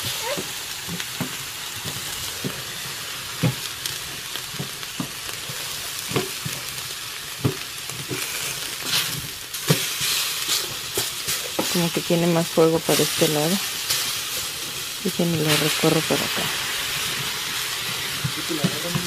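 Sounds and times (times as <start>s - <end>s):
steaks sizzling on a griddle: 0.0s - 19.0s.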